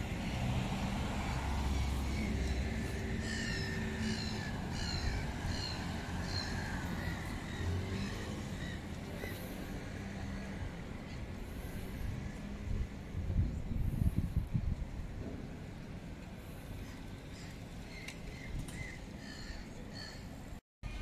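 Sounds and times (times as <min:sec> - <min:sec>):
city traffic rumble: 0:00.0 - 0:21.0
bird calling: 0:02.0 - 0:09.5.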